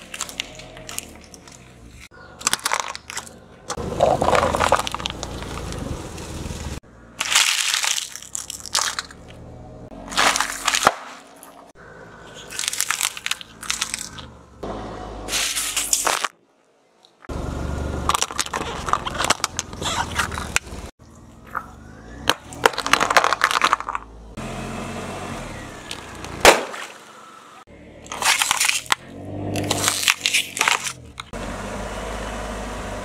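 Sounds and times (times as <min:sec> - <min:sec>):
objects crunching under tyre: 0:00.0 - 0:14.4, 0:15.3 - 0:16.4, 0:18.0 - 0:24.2, 0:25.7 - 0:27.2, 0:28.0 - 0:31.4
tyre rolling on asphalt: 0:02.7 - 0:06.8.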